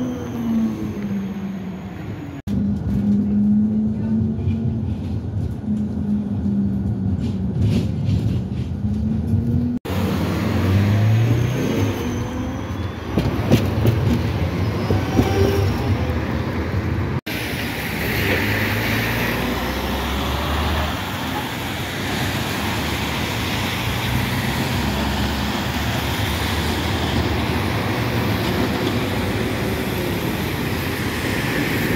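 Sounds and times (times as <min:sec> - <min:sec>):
tram wheels squealing: 0:00.0 - 0:02.4, 0:10.5 - 0:16.6, 0:20.1 - 0:31.9
traffic on wet road: 0:00.0 - 0:31.9
tram passing on rails: 0:00.0 - 0:31.9.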